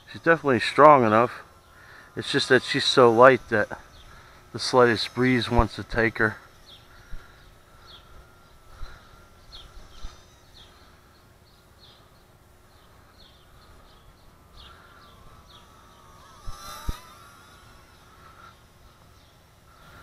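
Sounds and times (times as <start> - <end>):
quadcopter motors whining: 0.0 - 20.0
small bird chirping: 6.5 - 20.0.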